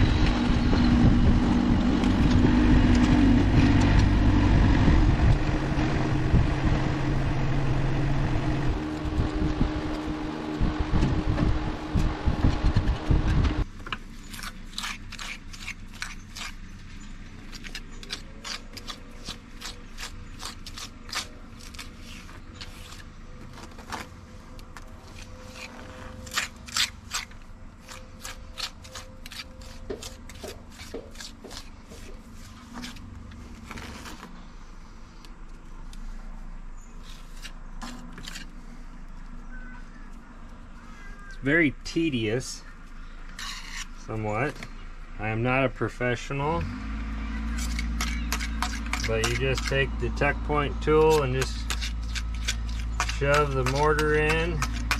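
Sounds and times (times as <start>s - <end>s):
trowel scraping mortar: 14.1s - 24.1s, 25.0s - 34.2s, 37.0s - 38.6s, 43.3s - 44.4s, 47.5s - 54.9s.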